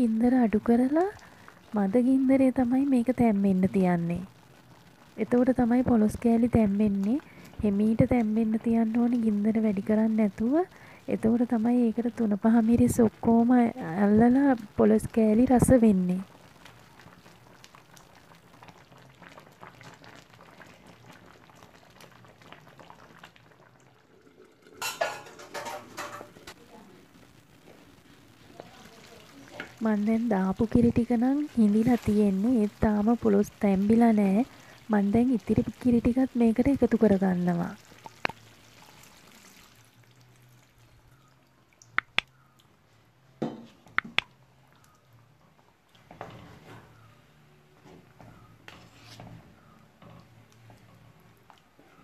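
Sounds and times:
curry bubbling and popping: 0.1 - 42.8, 43.6 - 46.4, 49.8 - 52.0
liquid pouring into pot: 17.4 - 26.3, 37.8 - 40.9
clay lid clattering on pot: 24.8 - 26.4.

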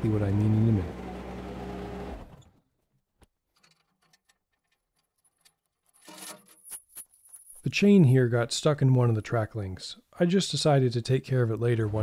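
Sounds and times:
engine hum: 0.0 - 2.4.

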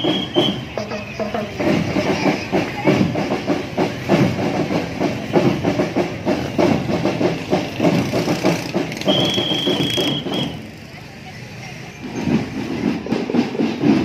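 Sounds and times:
long whistle blast: 0.0 - 0.7, 9.1 - 10.6
rhythmic beating: 0.0 - 10.6.

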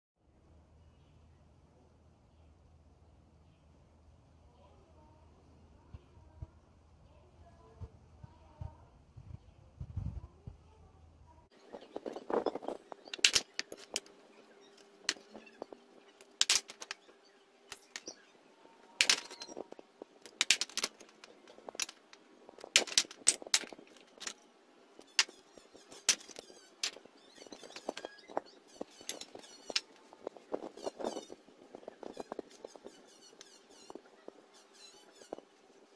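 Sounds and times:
objects set down on tiles: 12.0 - 14.1, 15.0 - 17.1, 19.0 - 24.4, 25.0 - 28.1.

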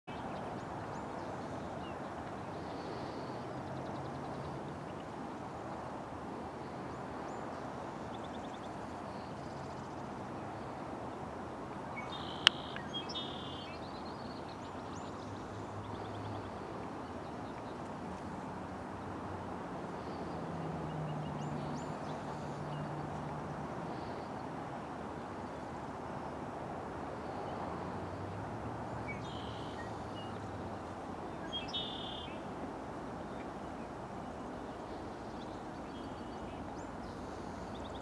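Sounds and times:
birds chirping and trilling: 12.0 - 14.4.

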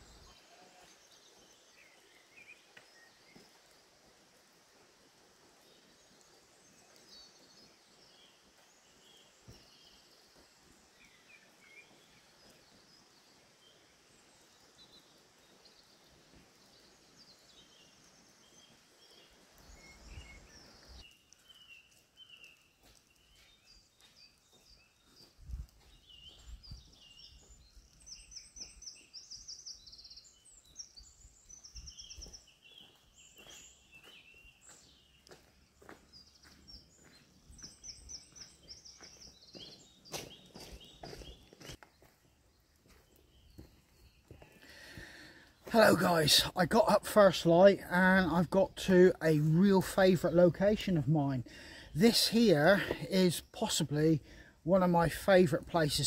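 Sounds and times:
small birds chirping and trilling: 0.0 - 56.0.

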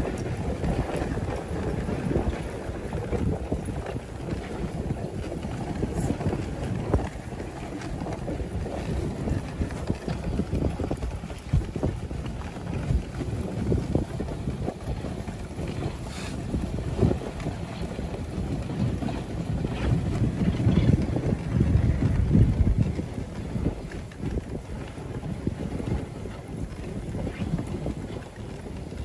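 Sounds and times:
sled knocking: 0.0 - 19.0
sled runners scraping on snow: 0.0 - 29.0
wind buffeting microphone: 0.0 - 29.0.

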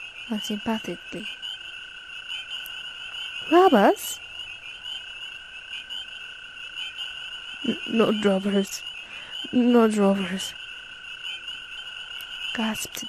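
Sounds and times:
toad trilling: 0.0 - 13.0.

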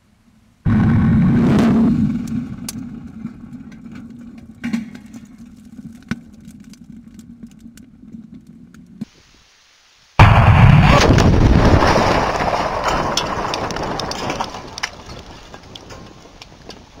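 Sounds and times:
heavy low rumble: 0.6 - 5.8, 10.2 - 15.4
very loud blast: 0.7 - 2.7, 10.2 - 12.8
debris cracks and clicks: 2.1 - 9.1, 10.8 - 17.0.

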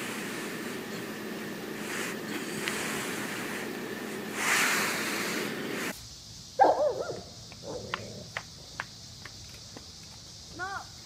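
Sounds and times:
dog barking: 6.6 - 8.0.

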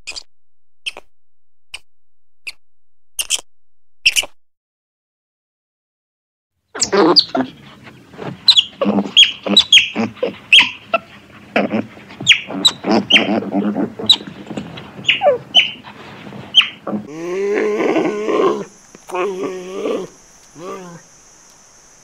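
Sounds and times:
otter chirping: 0.0 - 1.1, 3.2 - 4.4, 8.5 - 11.2, 12.2 - 15.8, 16.5 - 17.0
low wavering animal call: 16.5 - 21.2.

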